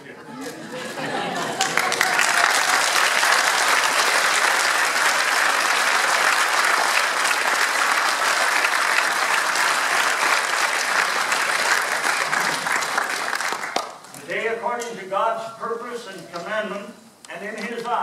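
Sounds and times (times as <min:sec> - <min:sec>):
crowd applauding: 0:01.0 - 0:14.1.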